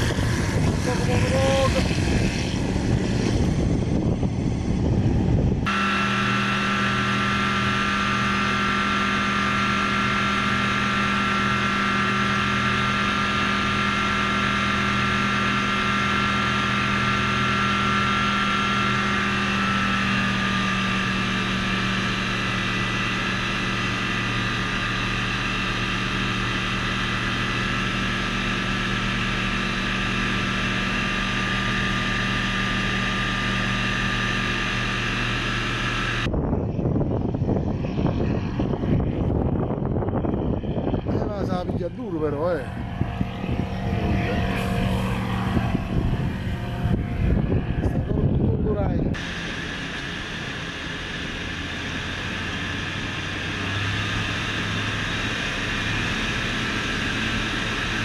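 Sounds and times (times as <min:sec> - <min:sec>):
engine and propeller drone: 0:00.0 - 0:58.0.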